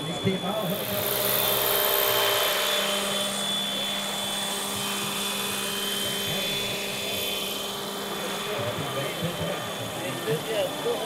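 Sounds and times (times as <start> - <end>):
model helicopter rotor whine: 0.0 - 11.0.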